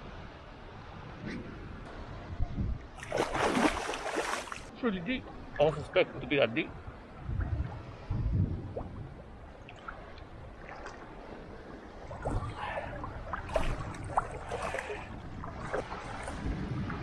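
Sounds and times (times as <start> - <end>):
wind buffeting microphone: 0.0 - 17.0
sea water sloshing and splashing: 2.9 - 4.7, 7.1 - 17.0.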